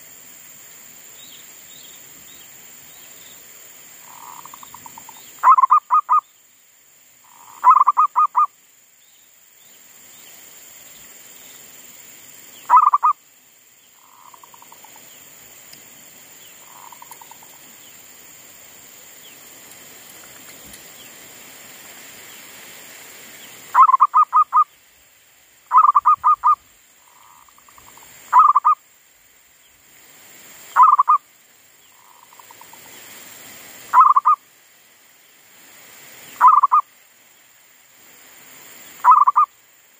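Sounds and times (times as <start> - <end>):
dove cooing: 25.7 - 28.8.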